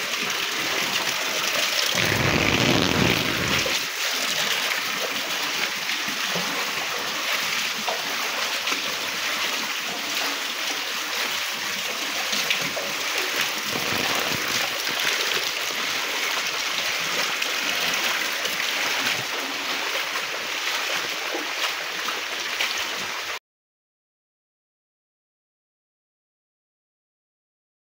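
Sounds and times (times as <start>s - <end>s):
runoff water flowing: 0.0s - 23.4s
heavy rain falling: 1.9s - 3.9s, 13.2s - 19.3s.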